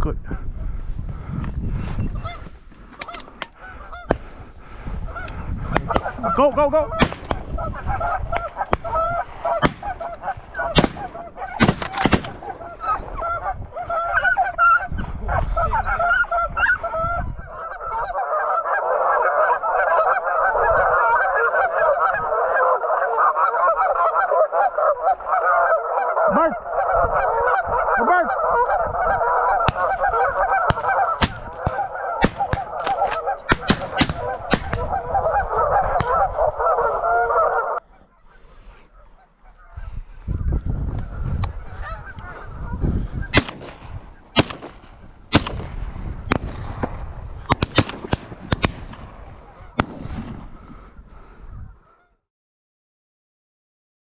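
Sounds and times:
geese honking: 1.9s - 44.7s, 49.3s - 49.9s, 50.5s - 52.2s
sharp cracks: 5.7s - 7.6s, 8.3s - 12.7s, 29.6s - 35.0s, 43.3s - 49.2s.

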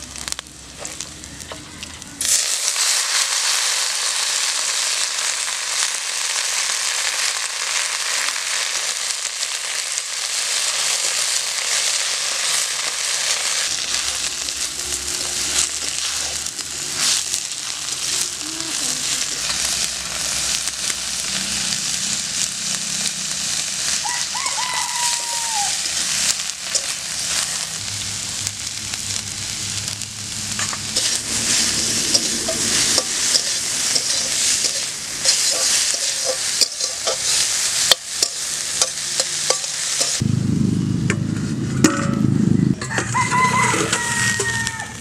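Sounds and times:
greens sizzling in a pan: 0.0s - 40.2s, 43.2s - 45.0s
rooster crowing: 23.9s - 26.0s, 42.8s - 45.0s
metal spatula scraping a pan: 26.0s - 27.6s, 30.5s - 40.2s
low rumble: 26.0s - 35.1s, 40.2s - 45.0s.

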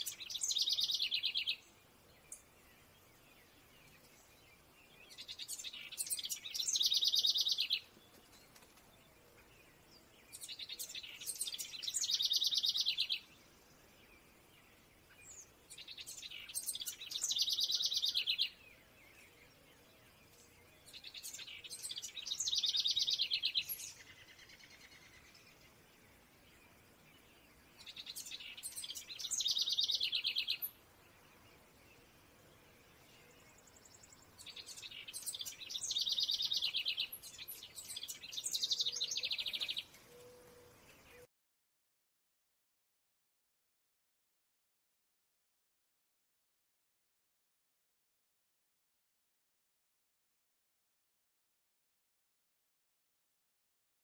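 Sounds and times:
songbird singing with trill: 0.0s - 41.3s.

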